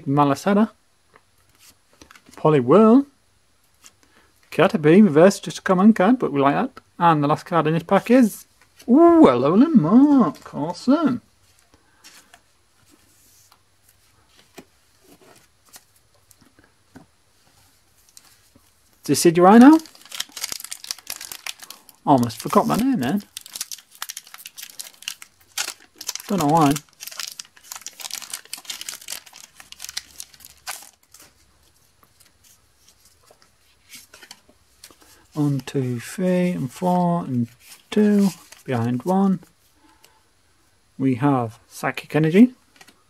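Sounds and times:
cards rustling: 0:18.0 - 0:35.8, 0:36.7 - 0:39.5
foil wrapper tearing and crinkling: 0:19.5 - 0:31.4.

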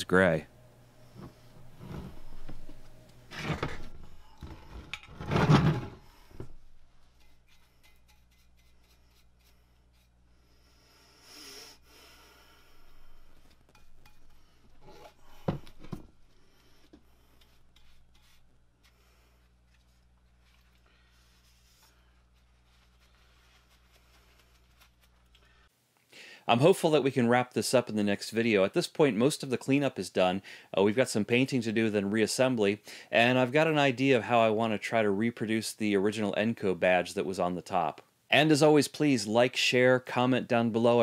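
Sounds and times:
paintbrush scrubbing on metal: 0:07.0 - 0:10.2, 0:16.4 - 0:25.3.

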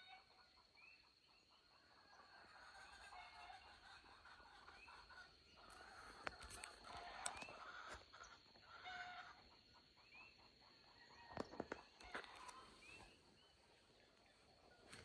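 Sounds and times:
bird chirps: 0:10.0 - 0:15.0.

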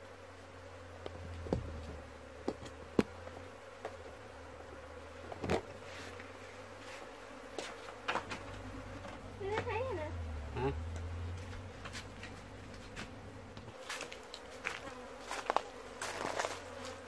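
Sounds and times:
bees buzzing: 0:00.0 - 0:17.0
sharp taps on wooden hive: 0:01.0 - 0:04.0.

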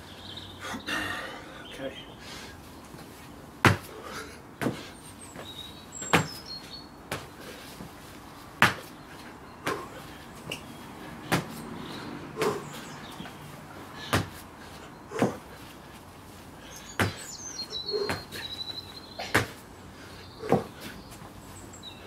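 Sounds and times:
slaps and thumps on paving: 0:03.6 - 0:04.0, 0:04.6 - 0:06.4, 0:07.1 - 0:07.9, 0:08.6 - 0:09.0, 0:09.6 - 0:11.7, 0:12.3 - 0:13.4, 0:14.0 - 0:15.6, 0:16.8 - 0:17.3, 0:17.9 - 0:18.6, 0:19.2 - 0:19.6, 0:20.4 - 0:21.3
faint bird chirps: 0:16.6 - 0:19.3.

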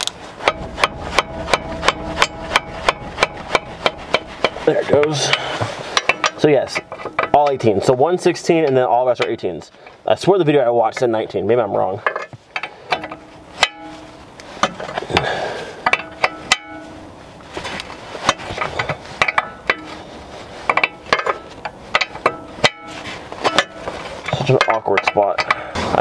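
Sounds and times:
wrench clinking on metal: 0:20.7 - 0:25.7.

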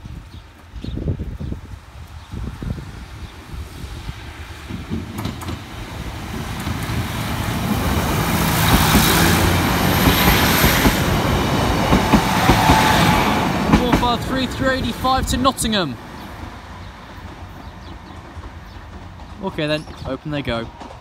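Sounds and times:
diesel train passing: 0:01.6 - 0:21.0
train wheels clicking over track: 0:04.5 - 0:15.0, 0:16.2 - 0:21.0.

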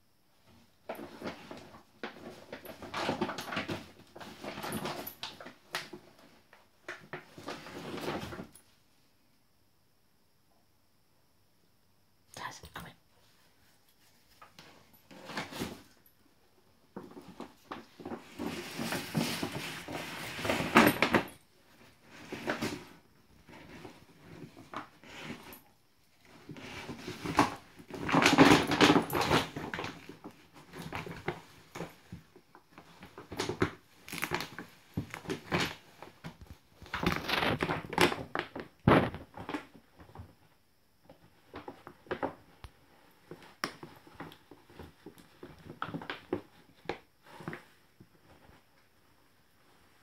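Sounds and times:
dog food bag crinkling: 0:26.5 - 0:32.2, 0:33.0 - 0:39.6.

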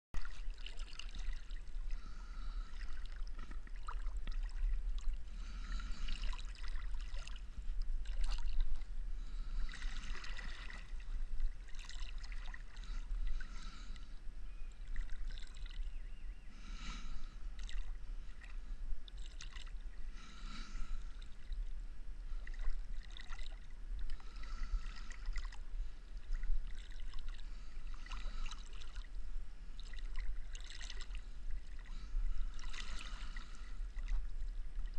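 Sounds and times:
paddle splashing in water: 0:00.2 - 0:14.0, 0:17.1 - 0:19.7, 0:22.4 - 0:25.6, 0:26.2 - 0:29.1, 0:29.8 - 0:34.9
low steady rumble: 0:00.2 - 0:34.9.

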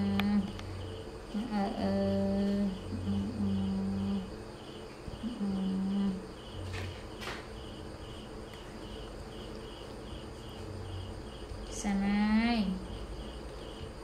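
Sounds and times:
woman humming: 0:00.0 - 0:00.6, 0:01.3 - 0:04.3, 0:05.2 - 0:06.3
crickets chirping: 0:00.0 - 0:14.0.

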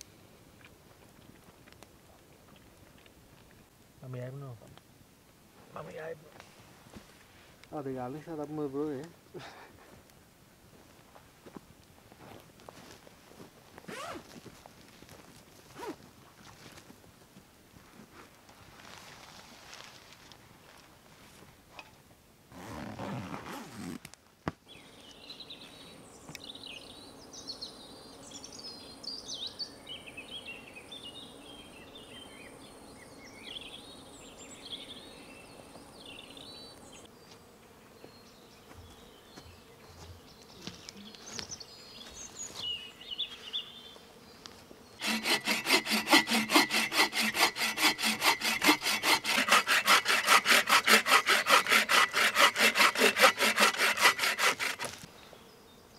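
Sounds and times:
bow saw cutting wood: 0:45.0 - 0:55.1.

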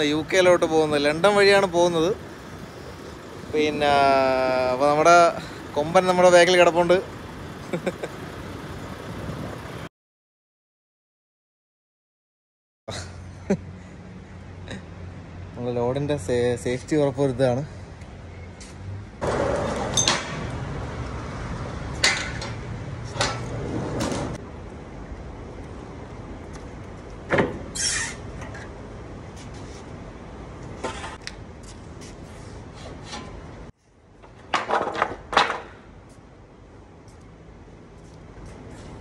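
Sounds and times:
knocks clanks and scrapes on trailer: 0:22.0 - 0:24.4, 0:27.4 - 0:28.8, 0:30.8 - 0:31.2, 0:32.2 - 0:33.5.

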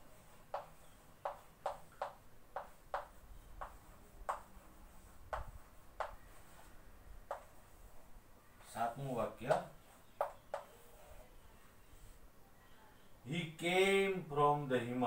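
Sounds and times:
chalk scratching on blackboard: 0:00.0 - 0:08.0, 0:09.7 - 0:12.2.

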